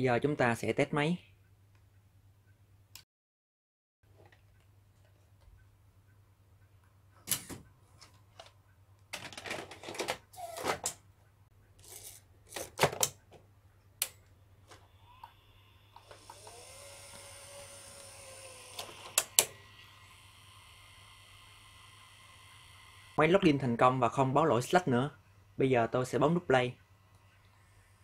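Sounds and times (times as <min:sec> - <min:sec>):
tape motor whirring with whine: 0:14.8 - 0:23.8
tape machine clicks and clunks: 0:16.0 - 0:19.7.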